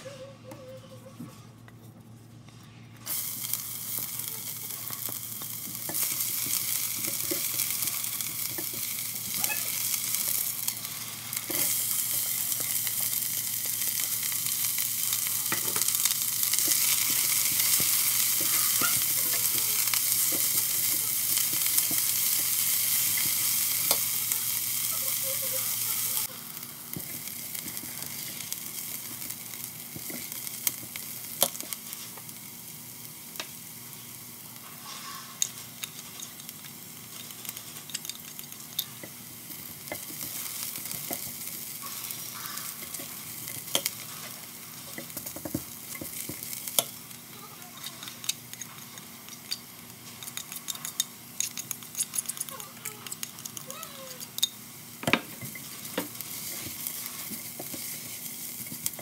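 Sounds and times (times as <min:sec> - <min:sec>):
onion and garlic sizzling in oil: 0:03.0 - 0:59.0
spatula scraping and tapping pot: 0:15.5 - 0:24.0, 0:37.2 - 0:47.0, 0:47.8 - 0:59.0.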